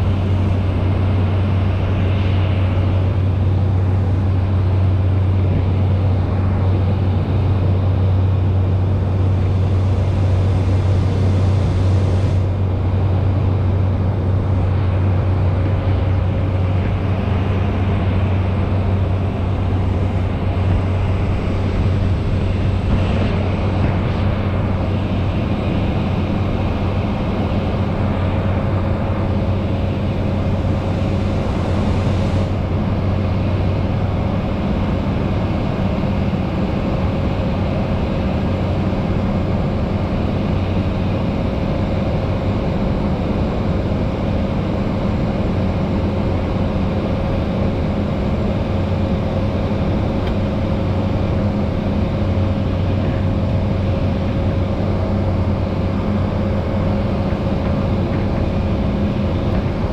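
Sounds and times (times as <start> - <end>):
propeller airplane engine droning: 0.0 - 59.9.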